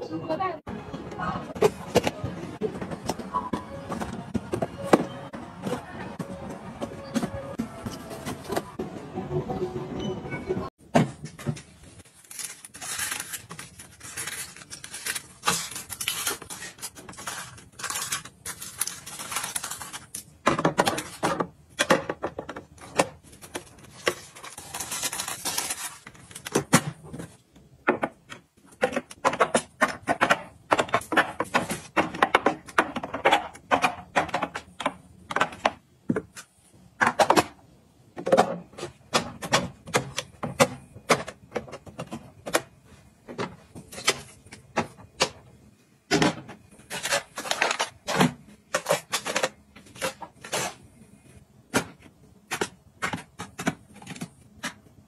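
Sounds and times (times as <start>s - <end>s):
plastic bins clicking and clattering: 12.8s - 45.5s, 46.1s - 50.9s, 51.6s - 55.0s.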